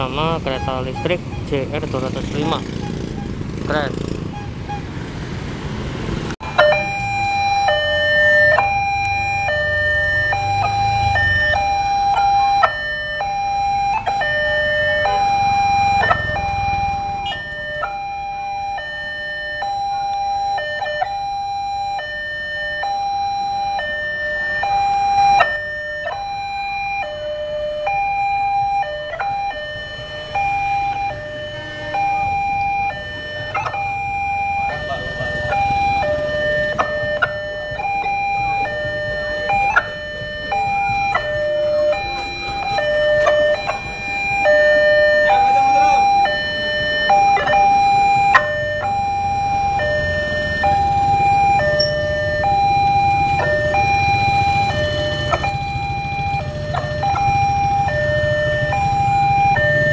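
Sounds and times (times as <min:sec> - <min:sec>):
motorbike engines rumbling: 0:00.0 - 0:59.9
level crossing two-tone alarm: 0:06.4 - 0:59.9.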